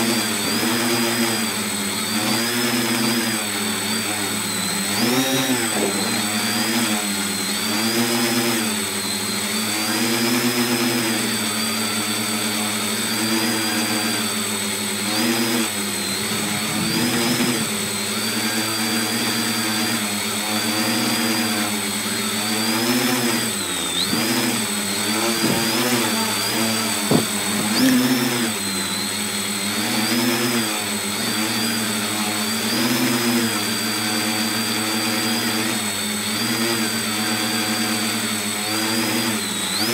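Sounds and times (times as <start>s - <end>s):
drone motors and propellers buzzing: 0.0s - 39.9s
steady high whine: 4.1s - 8.9s, 12.8s - 21.4s, 22.6s - 28.8s.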